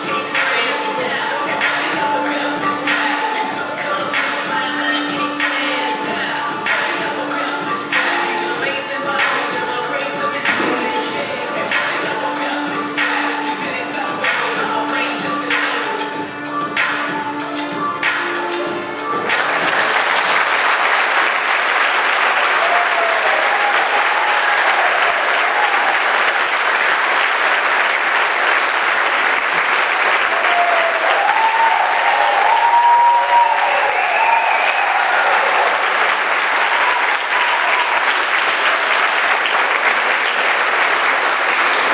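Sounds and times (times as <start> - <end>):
audience applauding: 19.2 - 41.9
shouts and whoops: 22.5 - 26.2, 30.3 - 35.9, 36.6 - 38.3.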